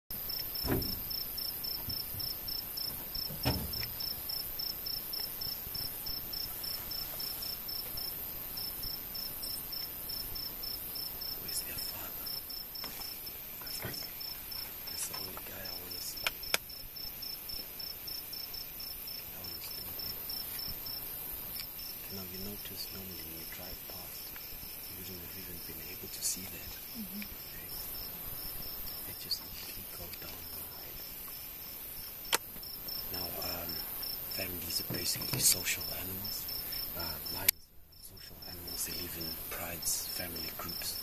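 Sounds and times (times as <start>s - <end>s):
cricket chirping: 0.1s - 41.0s
high insect whine: 0.2s - 41.0s
sharp clicks: 32.3s - 32.6s.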